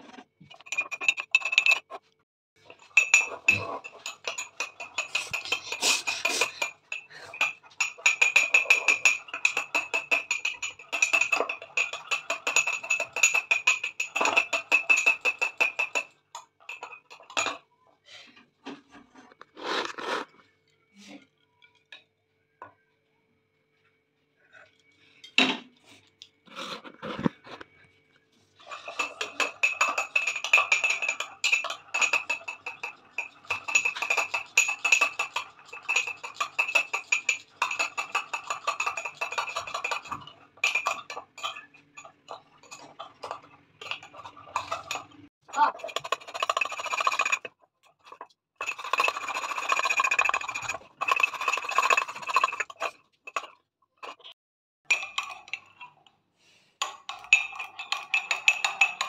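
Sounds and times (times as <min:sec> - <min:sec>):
metal spoon clinking in ceramic mug: 0:02.8 - 0:17.6, 0:28.7 - 0:54.2, 0:54.9 - 0:56.0, 0:56.8 - 0:59.0.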